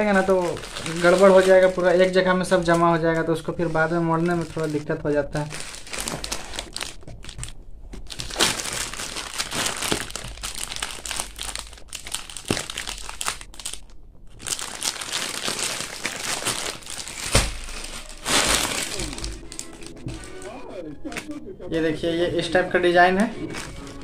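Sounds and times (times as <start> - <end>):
plastic packet crinkling: 0.0 - 21.3, 22.4 - 24.0.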